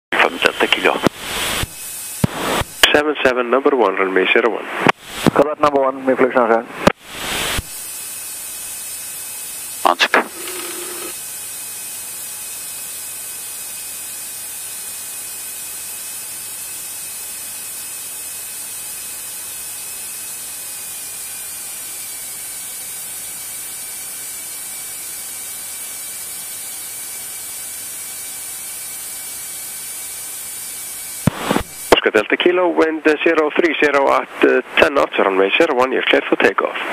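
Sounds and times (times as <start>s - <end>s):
intercom electronic hiss: 0.2s - 3.0s, 9.8s - 11.2s, 31.3s - 32.5s
faint steady whine: 9.8s - 11.2s.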